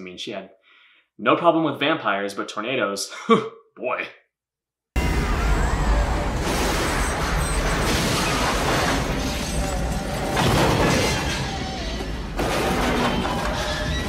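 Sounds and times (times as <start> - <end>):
debris and metal clattering: 6.2 - 14.0.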